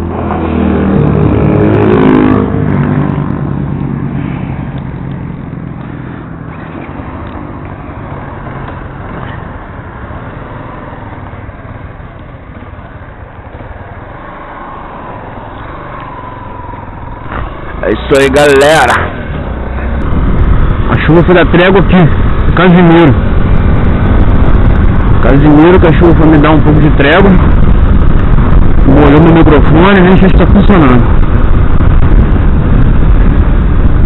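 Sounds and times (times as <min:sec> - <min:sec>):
motorcycle engine accelerating: 0:00.0 - 0:26.1
wind and road noise: 0:00.0 - 0:34.0.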